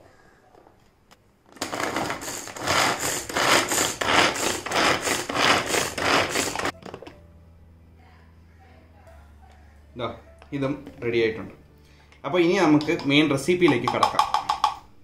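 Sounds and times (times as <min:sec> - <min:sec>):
hand chopper chopping onion: 0:01.6 - 0:06.8.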